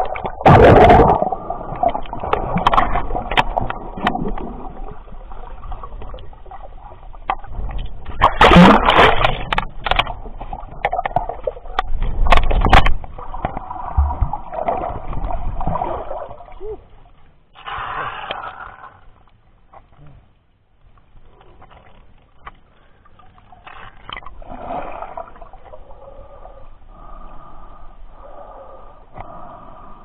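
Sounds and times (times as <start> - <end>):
water splashing and sloshing: 0.0 - 20.0, 20.8 - 27.7
loud splashes: 0.4 - 1.4, 8.2 - 9.6
crackling clicks: 1.8 - 4.6, 7.2 - 13.7, 20.8 - 24.4.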